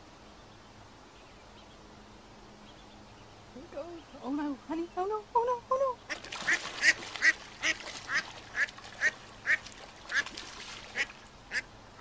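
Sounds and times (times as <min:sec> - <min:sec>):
water splashing: 0:06.1 - 0:11.7
duck quacking in alarm: 0:11.0 - 0:11.6.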